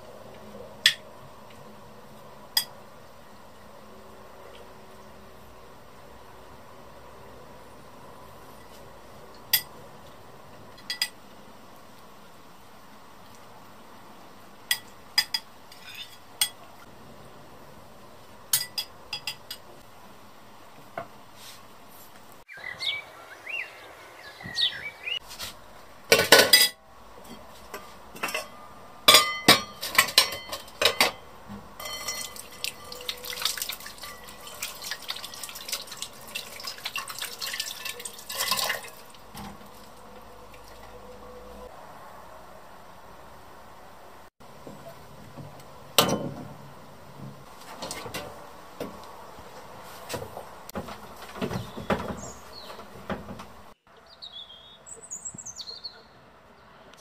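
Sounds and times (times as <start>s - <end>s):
dishes clinking and knocking: 26.1s - 27.4s, 28.2s - 31.2s, 31.8s - 33.2s, 46.0s - 46.6s
water running into basin: 31.8s - 41.0s.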